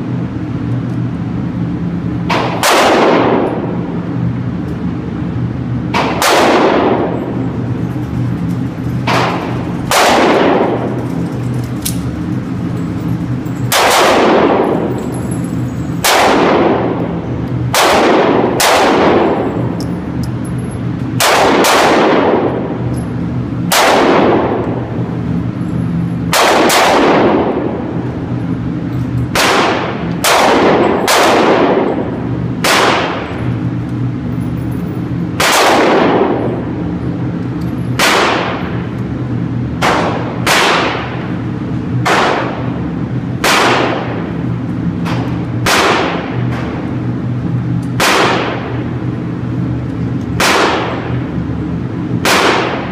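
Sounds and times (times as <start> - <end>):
steady low hum: 0.0 - 52.9
pistol shots echoing indoors: 0.6 - 52.9.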